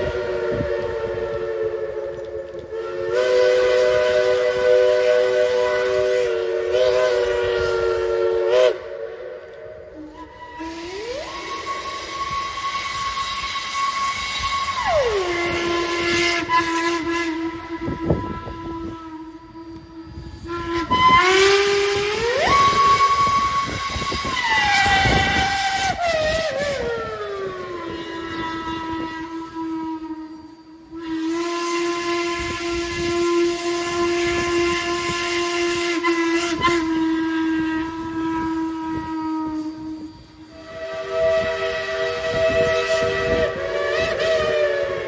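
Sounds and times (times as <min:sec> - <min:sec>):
steam locomotive chime whistle: 0:00.0 - 0:45.0.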